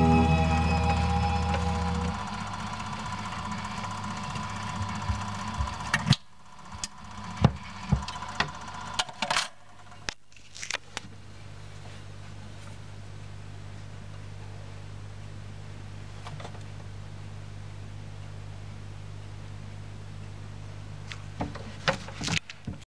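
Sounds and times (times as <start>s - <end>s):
record music: 0.0s - 2.8s
low hum: 0.0s - 6.6s.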